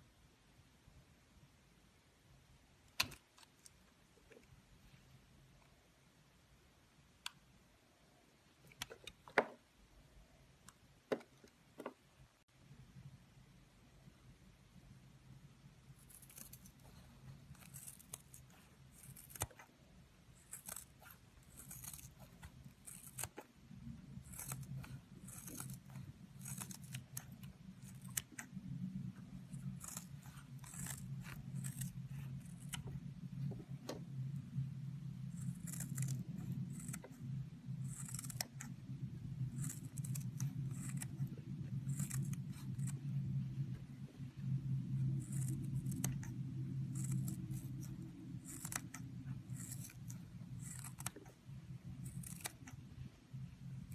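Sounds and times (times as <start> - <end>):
steady low hum: 3.7 - 53.9
scissors snipping through sponge: 16.0 - 19.7, 20.3 - 23.5, 24.1 - 33.0, 35.3 - 38.8, 39.4 - 43.0, 45.0 - 52.8.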